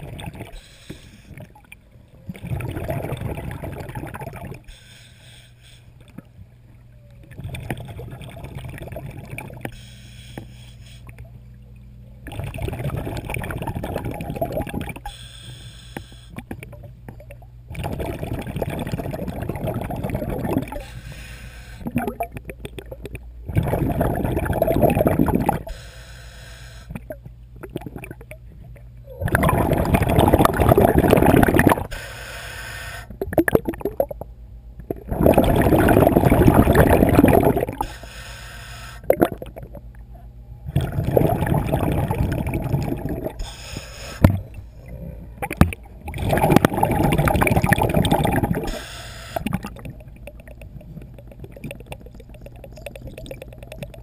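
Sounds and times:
gurgling exhaled bubbles: 0:00.0 - 0:00.6, 0:01.3 - 0:04.7, 0:06.9 - 0:09.7, 0:12.2 - 0:15.1, 0:16.4 - 0:20.9, 0:21.8 - 0:25.7, 0:26.9 - 0:32.0, 0:33.1 - 0:34.2, 0:34.8 - 0:37.9, 0:39.0 - 0:39.9, 0:40.6 - 0:54.0
regulator inhalations: 0:00.5 - 0:01.4, 0:04.7 - 0:06.0, 0:09.7 - 0:11.2, 0:15.0 - 0:16.5, 0:20.8 - 0:22.0, 0:25.6 - 0:27.0, 0:31.9 - 0:33.2, 0:37.8 - 0:39.1, 0:43.3 - 0:45.0, 0:48.6 - 0:49.6.

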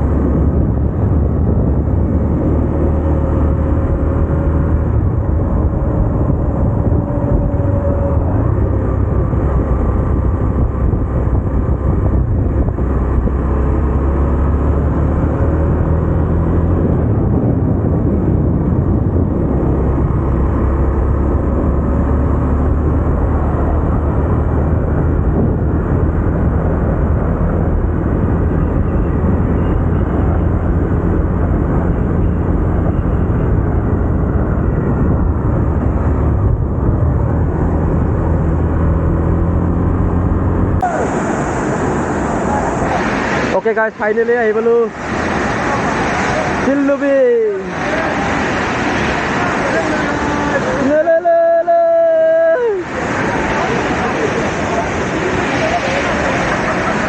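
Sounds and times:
motorcycle engine cruising: 0:00.0 - 0:42.8
wind rushing over microphone: 0:00.0 - 0:57.0.

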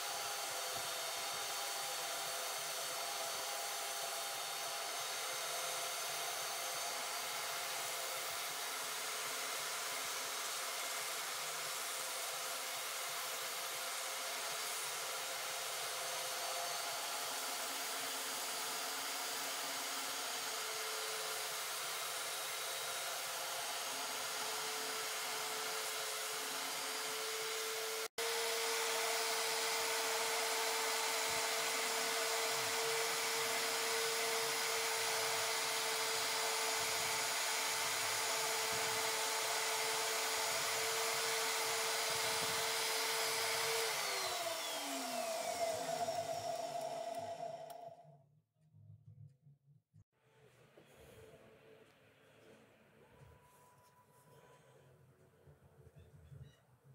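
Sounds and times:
drill press motor humming: 0:16.3 - 0:48.2
motor winding down: 0:19.6 - 0:48.2.

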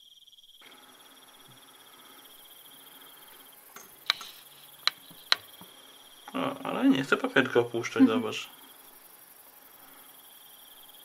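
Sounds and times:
tweezers clicking on plastic vial: 0:03.8 - 0:05.7.

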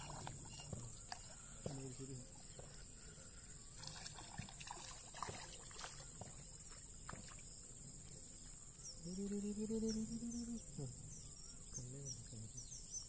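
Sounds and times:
fish splashing in water: 0:00.0 - 0:08.6.

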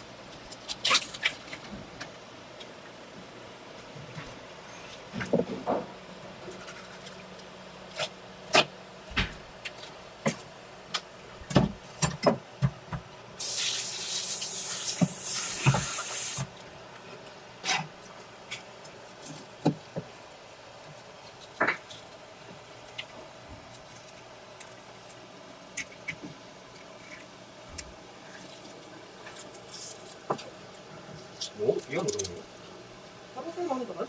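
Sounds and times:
water running from tap: 0:13.4 - 0:16.4.

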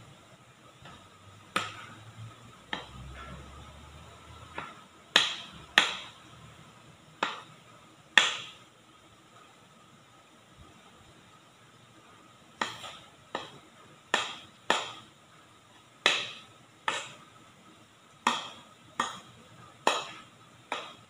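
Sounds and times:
metal spoon tapping steel bowl: 0:18.2 - 0:21.0.

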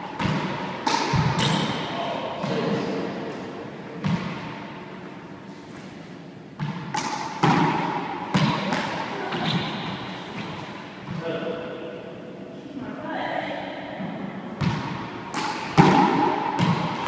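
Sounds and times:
handball hitting walls and floor: 0:00.0 - 0:02.9, 0:04.0 - 0:04.6, 0:06.6 - 0:11.2, 0:14.1 - 0:17.0.

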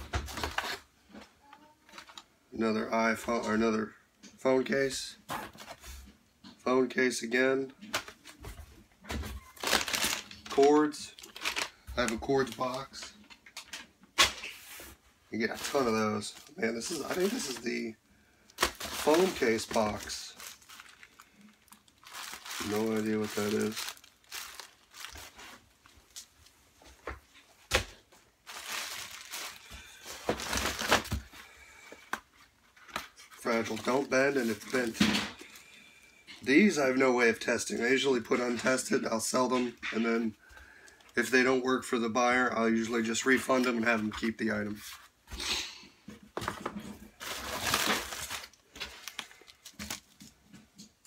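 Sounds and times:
cardboard rustling: 0:09.4 - 0:13.1, 0:14.5 - 0:17.9, 0:18.6 - 0:35.3, 0:46.3 - 0:50.7
plastic bags crinkling: 0:09.4 - 0:13.9, 0:15.4 - 0:17.9, 0:18.5 - 0:26.6, 0:27.7 - 0:37.0, 0:46.4 - 0:50.6.

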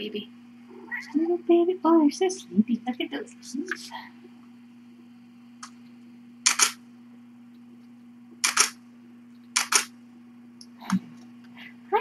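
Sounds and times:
camera shutter double click: 0:06.4 - 0:06.8, 0:08.4 - 0:08.8, 0:09.6 - 0:09.9.

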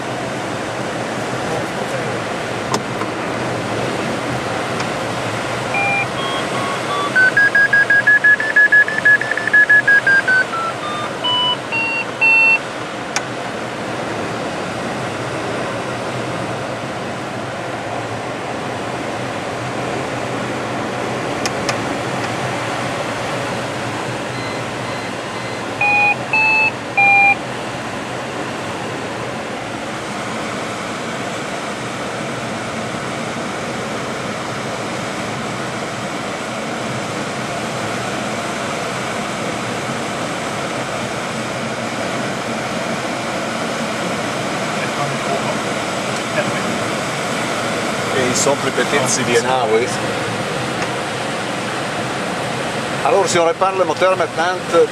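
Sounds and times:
air rushing around cockpit: 0:00.0 - 0:54.9
electronic beeps: 0:05.7 - 0:12.6, 0:24.3 - 0:27.4.

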